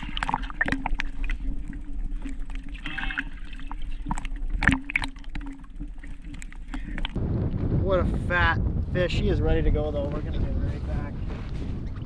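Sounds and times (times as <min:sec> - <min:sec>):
water sloshing and splashing: 0:00.0 - 0:07.2.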